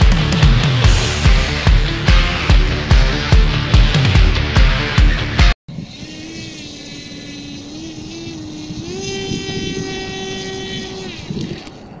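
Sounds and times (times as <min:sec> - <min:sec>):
model helicopter motor whine: 0:05.7 - 0:12.0.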